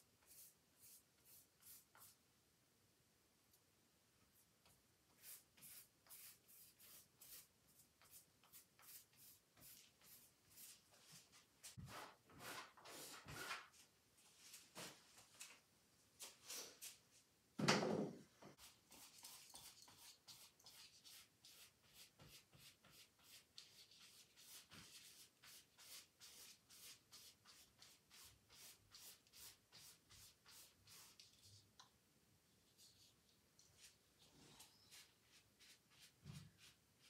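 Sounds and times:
paintbrush strokes on canvas: 0.2s - 2.2s, 5.1s - 13.5s, 18.6s - 31.6s, 32.6s - 37.0s.

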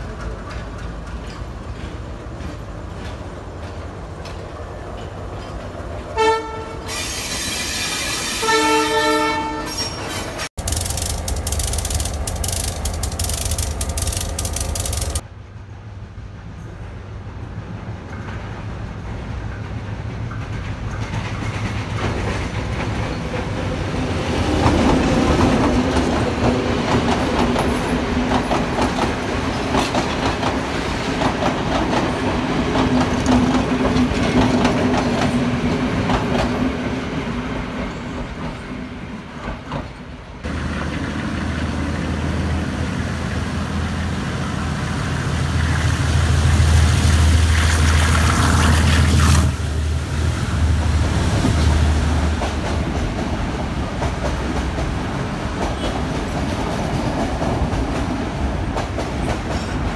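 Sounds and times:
train wheels clattering over rail joints: 0.0s - 5.8s, 10.3s - 15.2s
low rumble inside moving train: 0.0s - 7.0s, 8.4s - 59.9s
train passing drone: 10.3s - 59.9s.

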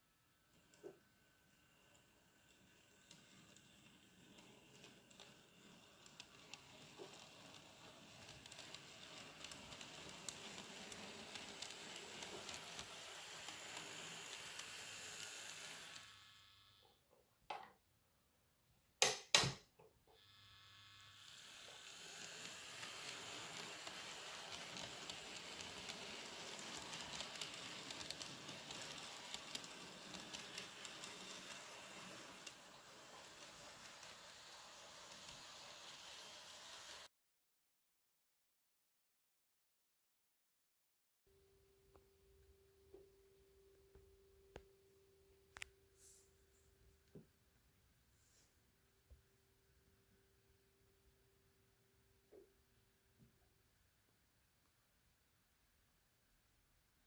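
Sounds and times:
model train rattling on track: 0.5s - 16.3s, 21.2s - 37.1s.

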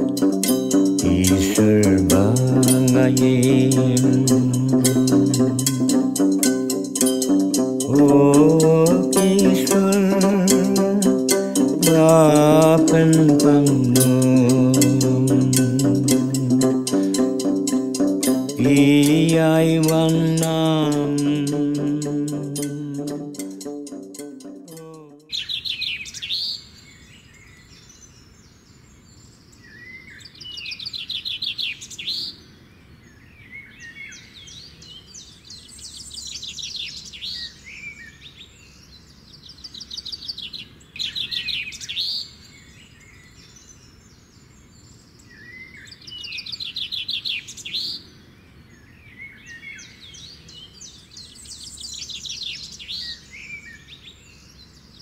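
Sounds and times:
guitar music: 0.0s - 25.3s
songbirds trilling and chirping: 0.0s - 55.0s
steady low hiss: 0.0s - 55.0s.

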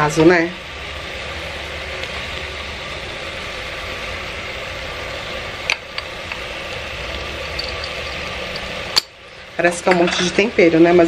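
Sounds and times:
low hum: 0.6s - 9.4s.

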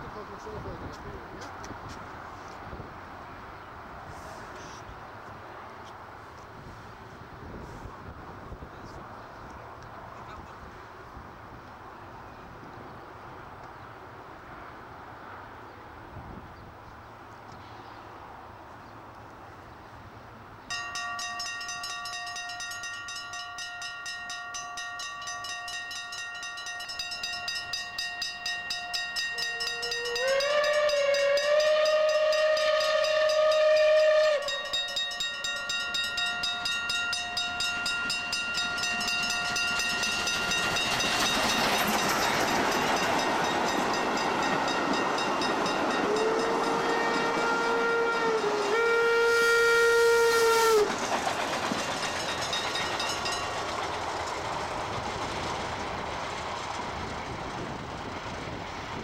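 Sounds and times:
passing train noise: 0.0s - 59.0s
level crossing bell ringing: 20.7s - 31.2s, 34.4s - 46.9s
steam whistle: 29.3s - 35.1s, 46.0s - 50.9s
lower steam whistle: 29.3s - 35.6s, 45.9s - 51.0s.

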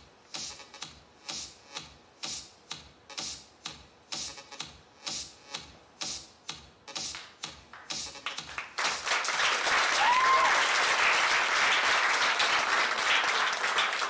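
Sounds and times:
music track: 3.1s - 9.0s
audience applauding: 7.7s - 14.0s.

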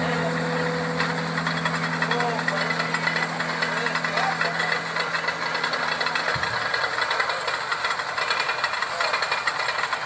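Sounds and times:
steady low hum: 0.0s - 8.3s
diesel truck engine knocking: 0.0s - 10.0s.

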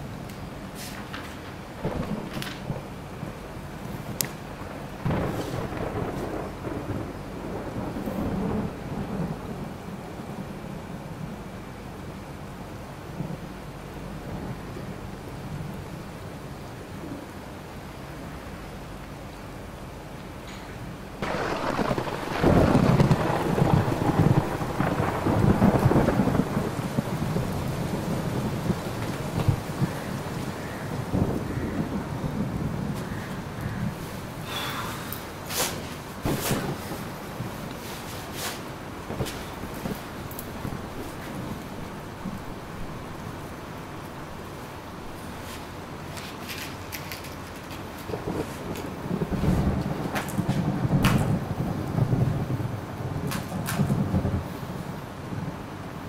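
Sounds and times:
thunder rumbling: 0.0s - 18.8s, 21.0s - 46.1s, 47.6s - 56.0s
steady rain: 0.0s - 56.0s
loud thunder clap: 1.8s - 3.4s, 4.1s - 10.0s, 21.2s - 34.0s, 36.2s - 37.8s, 48.1s - 54.6s.

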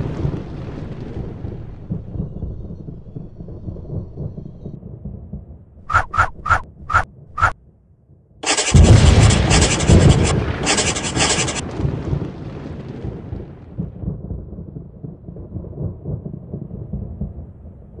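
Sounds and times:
crackling thunder crash: 0.0s - 5.6s, 8.4s - 17.6s
low thunder rumble: 0.0s - 7.4s, 8.8s - 18.0s.

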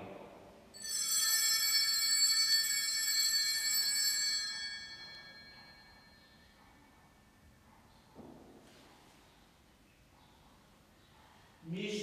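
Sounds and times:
bell ringing: 0.8s - 6.6s.

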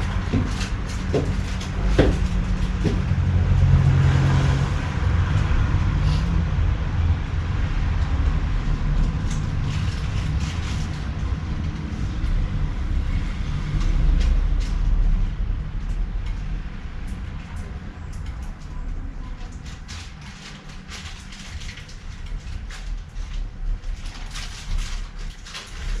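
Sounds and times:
street traffic rumble: 0.0s - 26.0s
footstep-like knocks: 0.2s - 3.4s.

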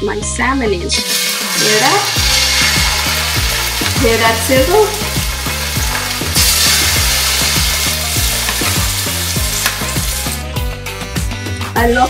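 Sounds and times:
background music with steady beat: 0.0s - 12.0s
fish sizzling in a pan: 1.0s - 10.4s.

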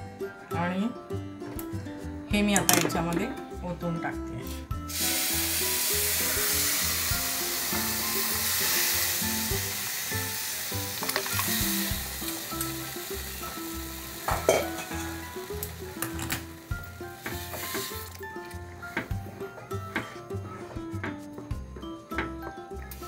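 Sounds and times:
water sizzling in a hot pan: 4.8s - 18.3s.

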